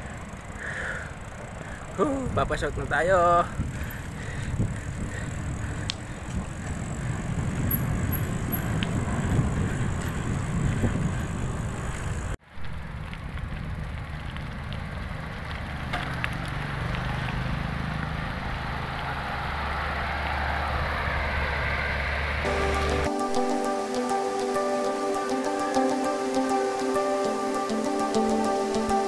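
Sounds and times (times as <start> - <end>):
bicycle tyre rumble on concrete: 0.0 - 23.3
wind noise on microphone: 3.4 - 12.4.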